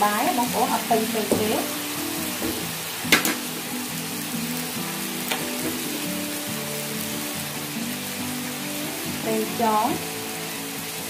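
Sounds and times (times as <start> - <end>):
background music: 0.0 - 11.0
shrimp sizzling in hot oil: 0.0 - 11.0
sharp knock: 2.4 - 3.4.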